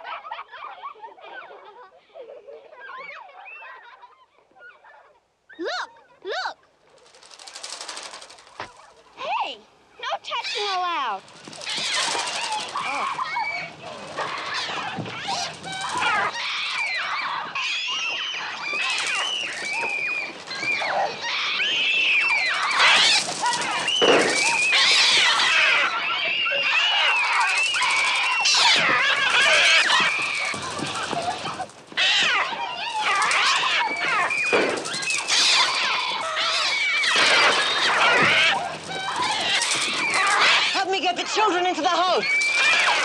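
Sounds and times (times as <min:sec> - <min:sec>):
children screaming: 0:00.0 - 0:04.8, 0:07.2 - 0:09.4, 0:10.0 - 0:43.0
gulls shrieking and squawking: 0:10.3 - 0:43.0.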